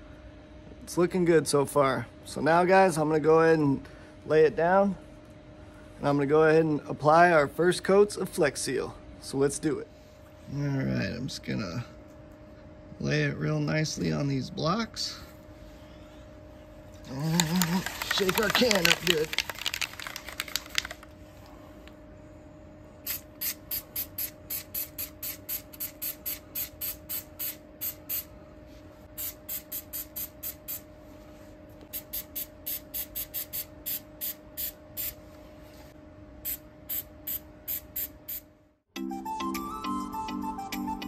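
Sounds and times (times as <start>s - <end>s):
faint steady hum: 0.0s - 38.9s
aerosol can spraying bursts: 23.0s - 28.3s, 31.9s - 35.2s.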